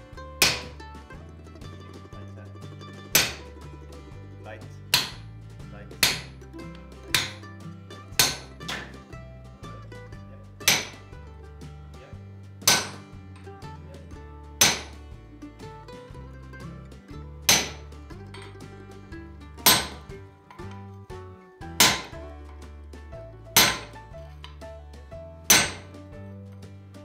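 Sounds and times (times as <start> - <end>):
background music: 0.0 - 27.0
sledgehammer striking metal on anvil: 0.4 - 0.8, 3.1 - 3.5, 4.9 - 5.3, 6.0 - 6.4, 7.1 - 7.4, 8.2 - 9.0, 10.6 - 11.0, 12.6 - 13.1, 14.6 - 15.0, 17.4 - 18.5, 19.6 - 20.8, 21.8 - 22.3, 23.6 - 24.6, 25.5 - 26.0.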